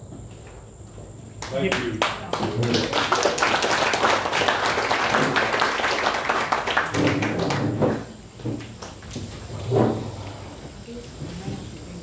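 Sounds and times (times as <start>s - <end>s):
small audience applauding: 1.4s - 9.1s.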